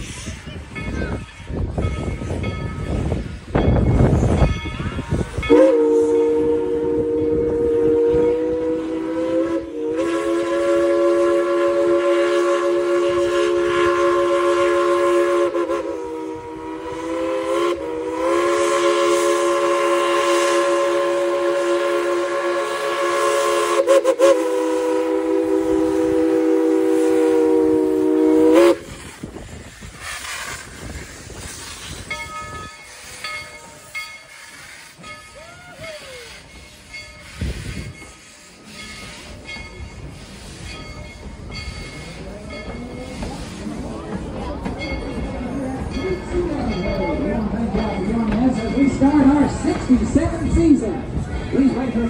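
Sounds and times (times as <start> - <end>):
steam locomotive whistle: 4.2 - 40.9.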